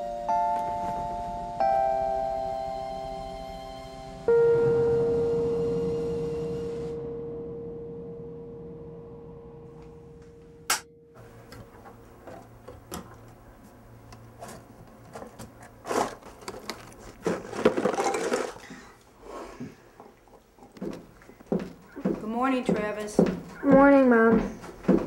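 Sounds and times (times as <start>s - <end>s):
ringing tone: 0.0s - 11.4s
cereal boxes handled in cupboard: 14.3s - 19.0s
knocks: 20.8s - 25.0s.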